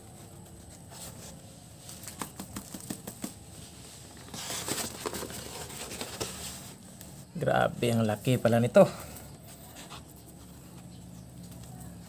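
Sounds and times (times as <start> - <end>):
paper rustling and crinkling: 0.1 - 7.2.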